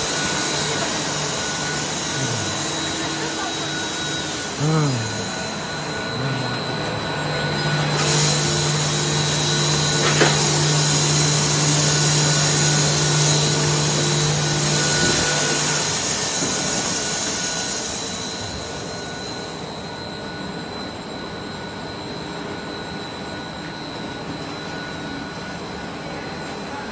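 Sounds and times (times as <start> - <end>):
low machine hum: 0.0 - 16.1
machine motors whirring: 0.0 - 16.8
thin high machine whine: 0.0 - 26.9.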